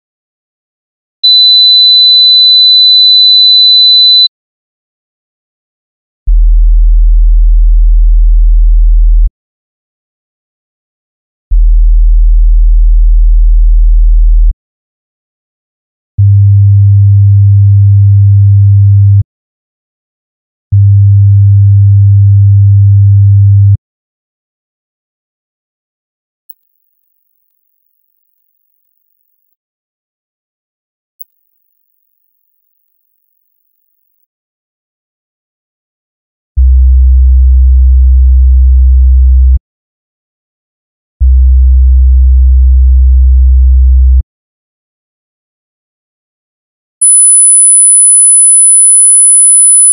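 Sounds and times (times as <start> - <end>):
low pure sine tone: 6.3 - 9.3, 11.5 - 14.5, 47.0 - 49.9.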